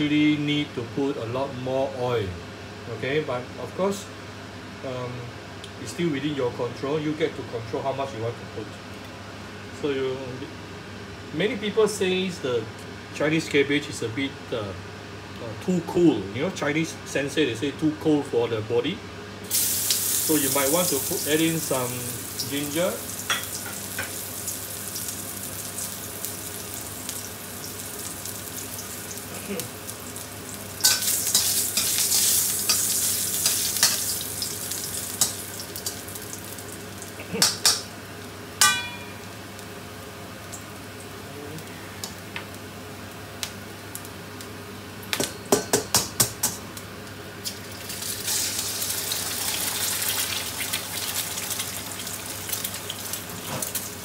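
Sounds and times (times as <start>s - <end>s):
sizzling in hot oil: 19.4s - 41.2s, 47.4s - 54.0s
egg frying in oil: 19.5s - 37.8s, 47.4s - 54.0s
metal spatula knocking wok: 38.6s - 39.2s.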